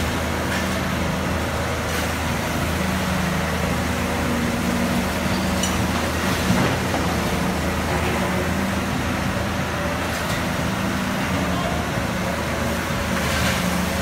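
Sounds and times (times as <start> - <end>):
excavator diesel engine running: 0.0 - 14.0.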